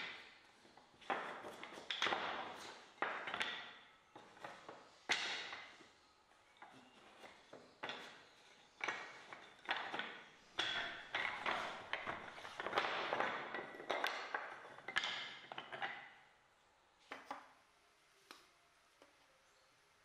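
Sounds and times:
wooden sticks clacking: 0.0s - 5.8s, 6.6s - 16.0s.

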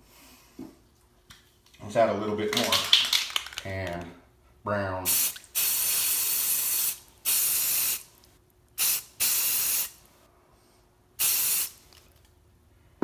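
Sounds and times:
spray paint can hissing: 5.1s - 8.1s, 8.8s - 10.0s, 11.2s - 11.8s.

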